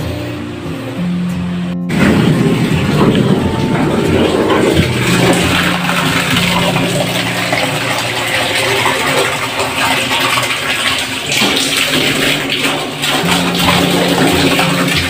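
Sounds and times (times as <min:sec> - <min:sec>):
water sloshing and splashing: 0:01.9 - 0:15.0.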